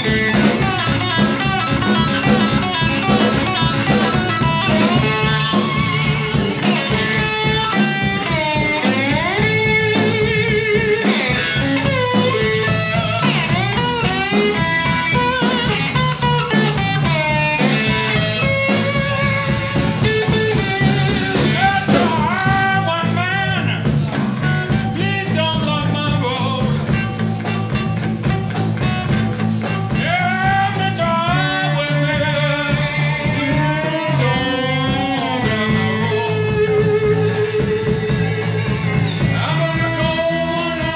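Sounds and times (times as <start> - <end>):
electric slide guitar solo: 0.0 - 23.0, 31.4 - 40.9
bass guitar: 0.0 - 40.9
drum kit: 0.0 - 40.9.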